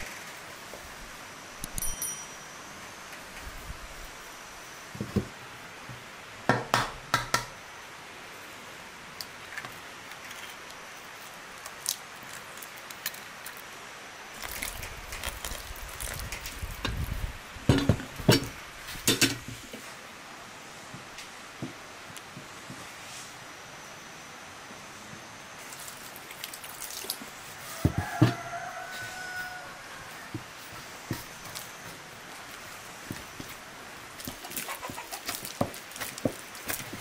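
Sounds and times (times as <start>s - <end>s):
rustling and handling: 14.3s - 18.2s, 25.6s - 37.0s.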